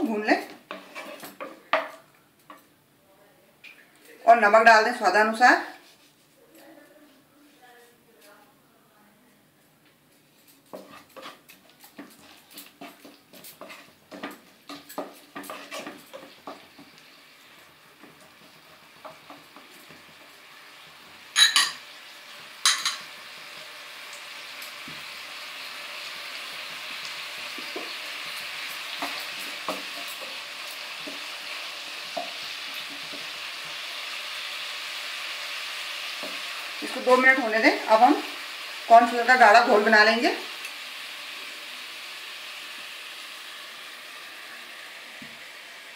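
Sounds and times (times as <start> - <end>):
spatula scraping in a pan: 0.0 - 2.7, 10.1 - 21.8, 24.6 - 42.0
vegetables sizzling: 0.0 - 2.7, 10.2 - 45.9.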